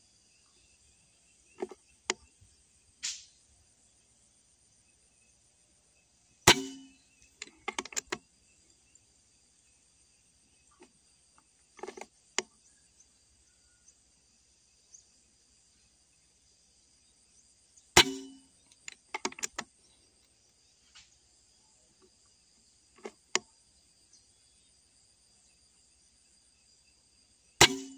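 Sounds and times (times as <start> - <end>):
insects buzzing: 0.0 - 27.9
air rifle shots: 6.5 - 7.0, 27.6 - 27.9.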